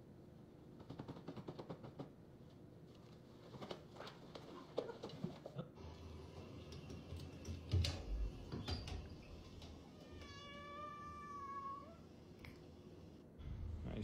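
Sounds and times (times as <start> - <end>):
cat meowing: 9.9 - 12.1.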